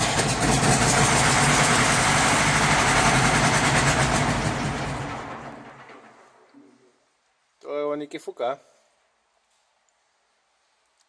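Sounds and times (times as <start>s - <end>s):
tractor diesel engine running: 0.0s - 6.4s.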